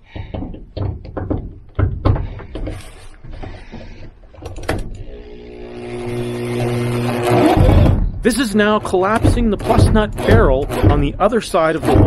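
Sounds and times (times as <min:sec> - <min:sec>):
metallic clicks and knocks: 0:00.0 - 0:05.0
drill motor running: 0:04.9 - 0:12.0.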